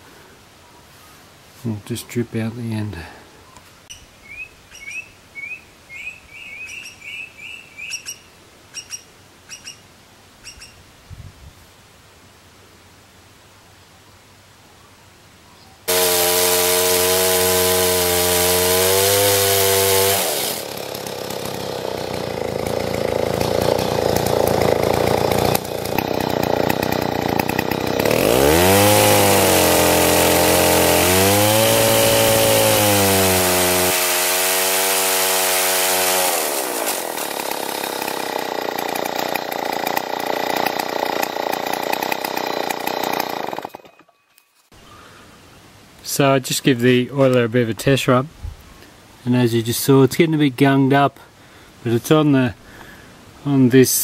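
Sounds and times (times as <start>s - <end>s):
chainsaw cutting log: 15.9s - 44.0s.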